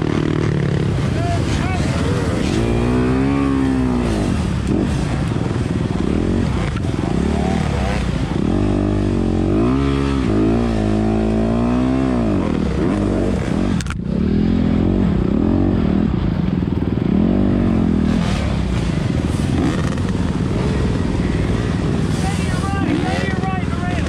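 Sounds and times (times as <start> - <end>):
dirt bike engine revving: 0.0 - 24.0
sharp click: 13.8 - 14.0.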